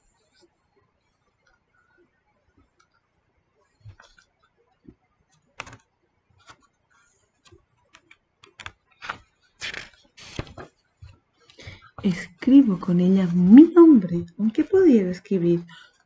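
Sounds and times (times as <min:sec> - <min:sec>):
page rustling as it turns: 0:08.0 - 0:10.7.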